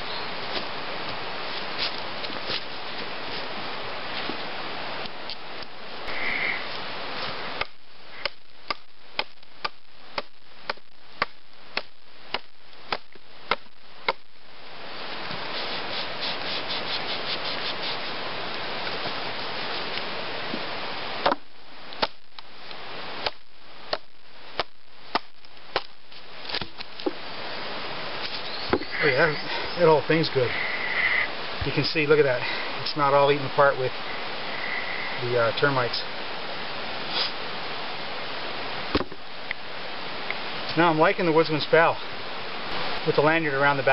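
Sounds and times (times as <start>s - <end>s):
steady buzzing hiss: 0.0s - 43.9s
blade chopping into log: 7.6s - 14.2s, 23.2s - 25.9s.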